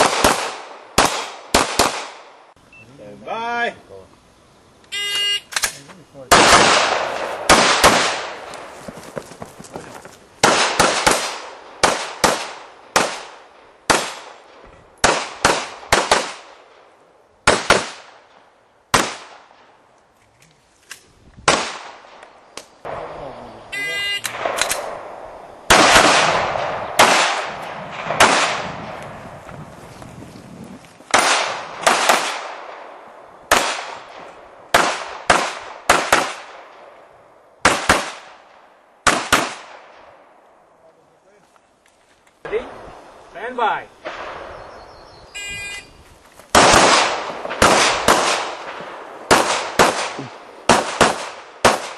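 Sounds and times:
gunshots with echo: 10.4s - 16.5s, 24.3s - 29.0s, 46.6s - 51.9s.

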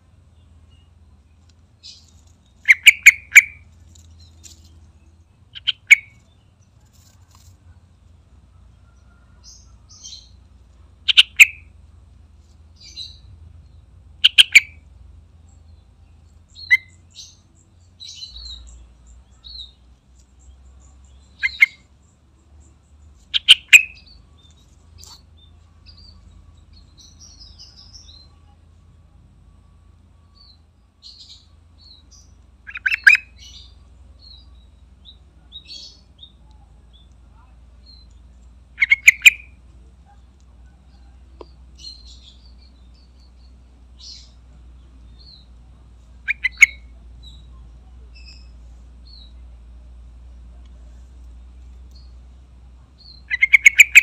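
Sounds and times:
bulbul singing: 0.0s - 7.8s, 8.4s - 12.0s, 12.6s - 54.0s
faint high chirps: 12.6s - 54.0s.

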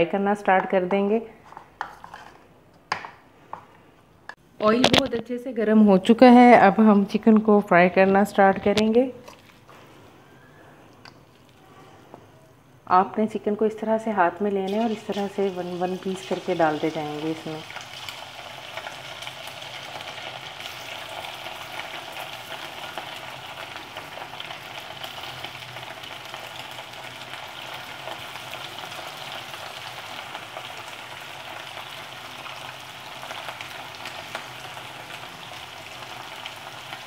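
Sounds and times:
chicken deep-frying in oil: 14.6s - 37.0s.

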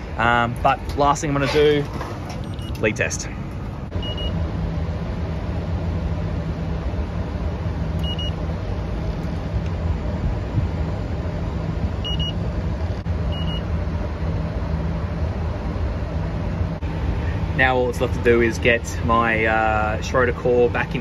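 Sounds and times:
air conditioning unit humming: 0.0s - 21.0s
leak detector beeps: 3.9s - 4.4s, 8.0s - 8.4s, 12.0s - 12.5s, 13.3s - 13.7s.

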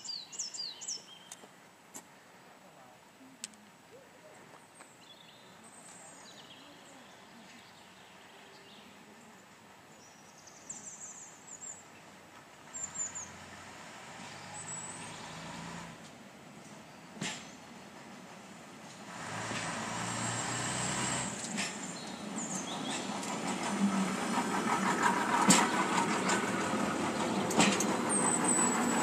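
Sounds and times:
small birds chirping: 0.0s - 1.5s, 4.0s - 13.4s, 21.8s - 23.6s
diesel train engine approaching: 10.8s - 29.0s.

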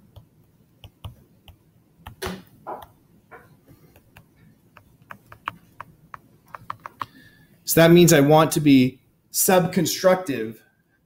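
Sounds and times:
stylus tapping on screen: 0.1s - 7.2s.

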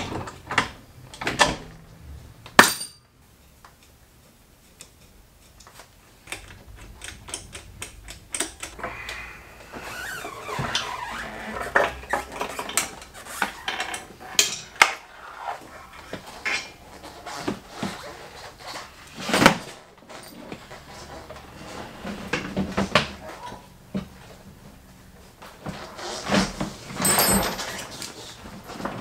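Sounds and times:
metallic clanks and knocks: 27.0s - 27.9s.

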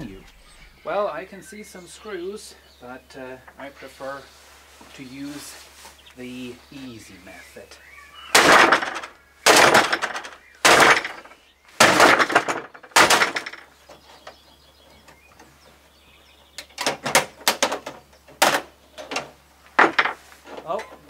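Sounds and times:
sledgehammer smashing plastic: 8.4s - 11.2s, 11.8s - 13.7s.

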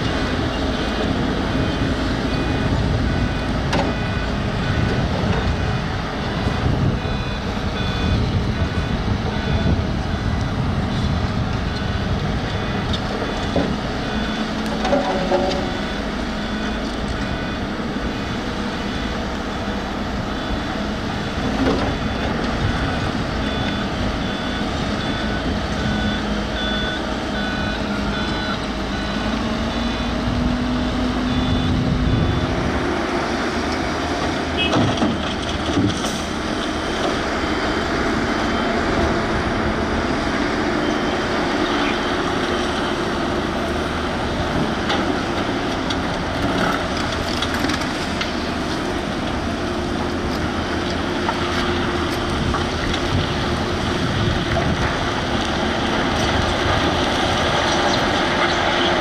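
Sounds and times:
reversing beeps: 0.0s - 32.8s, 38.3s - 40.0s, 40.7s - 43.6s
excavator diesel engine running: 0.0s - 59.0s.

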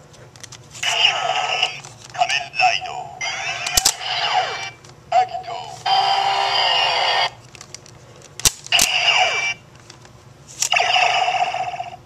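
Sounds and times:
electronic toy sound effects: 3.2s - 7.4s, 8.8s - 9.6s, 10.7s - 12.0s.

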